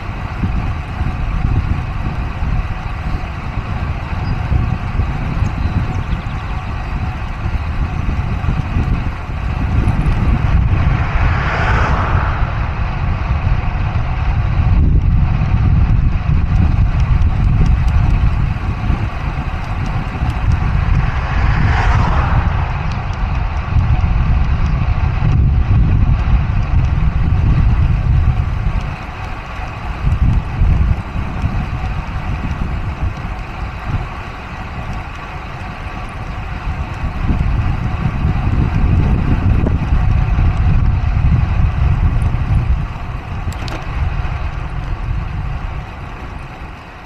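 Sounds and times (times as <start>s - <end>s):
highway traffic: 0.0s - 47.0s
wind rumble on microphone: 0.0s - 47.0s
vehicle passing close: 8.5s - 14.5s, 18.6s - 24.6s.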